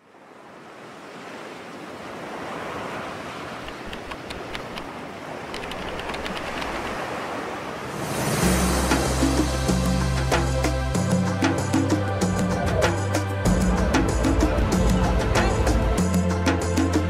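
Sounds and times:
waves breaking: 0:00.0 - 0:10.8
faint clicks: 0:03.6 - 0:04.9, 0:05.5 - 0:07.0.

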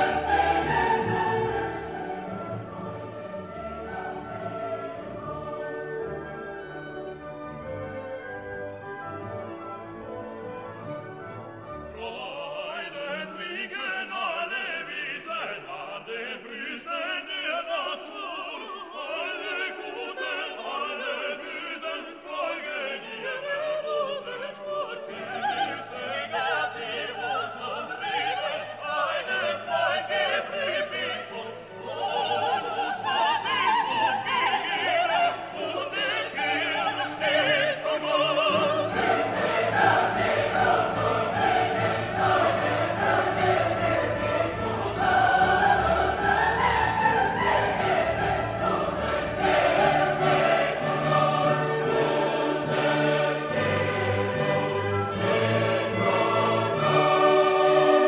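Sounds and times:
orchestra playing: 0:00.0 - 0:13.7, 0:28.4 - 0:58.0
operatic and choral singing: 0:00.0 - 0:58.0.

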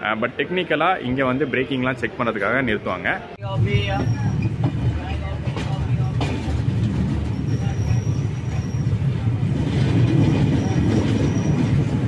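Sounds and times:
train wheels rumbling on track: 0:03.4 - 0:12.0.

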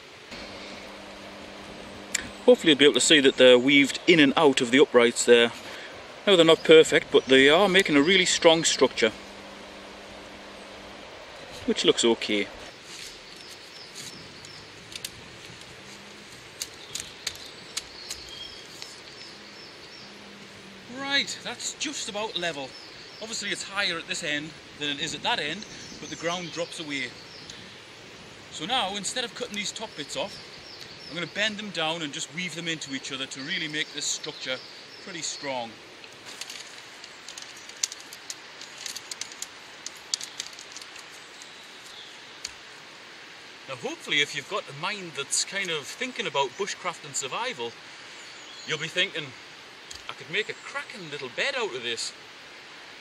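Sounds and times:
birds chirping: 0:00.0 - 0:42.8, 0:43.6 - 0:52.1
steady background hiss: 0:00.0 - 0:53.0
willow rods clicking and creaking: 0:11.4 - 0:19.2, 0:36.0 - 0:42.6.

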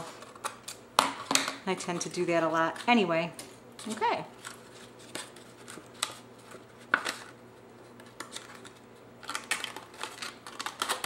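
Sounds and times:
stiff paper crackling: 0:03.8 - 0:11.0.

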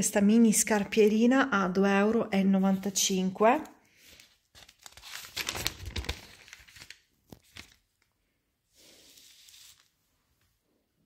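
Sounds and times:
paper pages rustling: 0:02.6 - 0:03.3, 0:03.9 - 0:08.1, 0:08.9 - 0:10.1
paper crackles: 0:04.1 - 0:08.1, 0:09.0 - 0:10.0.

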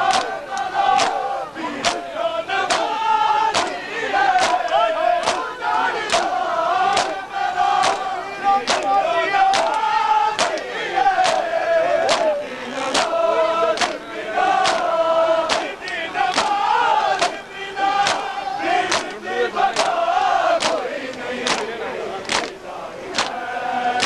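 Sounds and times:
hands slapping chests: 0:00.0 - 0:01.2, 0:01.8 - 0:02.0, 0:02.7 - 0:02.9, 0:03.5 - 0:03.8, 0:04.4 - 0:05.5, 0:06.1 - 0:07.2, 0:07.8 - 0:08.1, 0:08.7 - 0:08.9, 0:09.5 - 0:09.8, 0:10.4 - 0:13.2, 0:13.8 - 0:14.0, 0:14.6 - 0:14.9, 0:15.5 - 0:16.6, 0:17.2 - 0:17.4, 0:18.0 - 0:18.3, 0:18.9 - 0:20.0, 0:20.6 - 0:23.4
men chanting a lament: 0:00.0 - 0:24.0.

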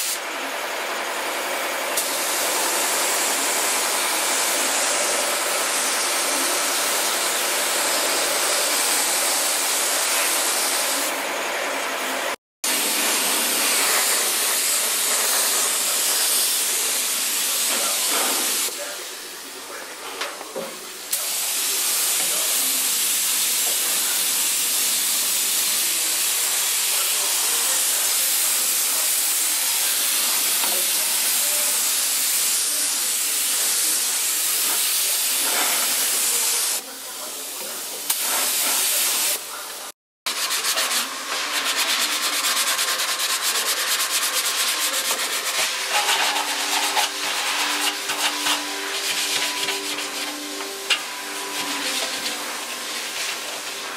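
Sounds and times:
spray gun hissing: 0:12.7 - 0:18.7, 0:40.4 - 0:53.9
sanding pad rubbing sheet metal: 0:40.3 - 0:53.9.

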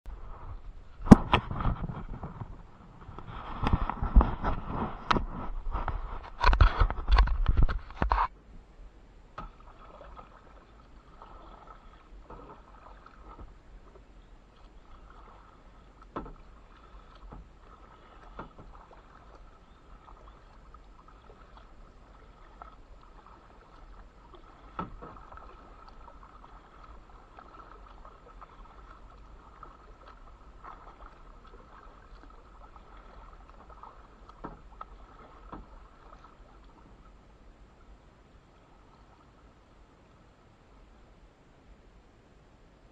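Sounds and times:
small knocks and splashes: 0:00.8 - 0:08.3, 0:09.3 - 0:37.2
faint steady hiss: 0:08.3 - 0:42.9
paddle dipping and dripping: 0:09.2 - 0:41.1.

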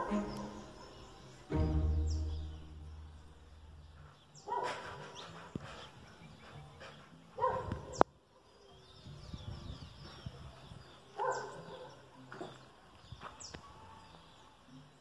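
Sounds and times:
birds chirping: 0:00.0 - 0:15.0
dog barking: 0:04.4 - 0:05.0, 0:07.4 - 0:08.0, 0:11.2 - 0:12.5.

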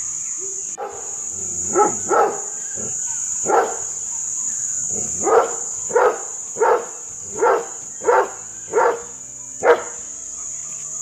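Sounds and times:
dog barking aggressively: 0:00.8 - 0:02.9, 0:03.5 - 0:03.8, 0:05.0 - 0:10.0.

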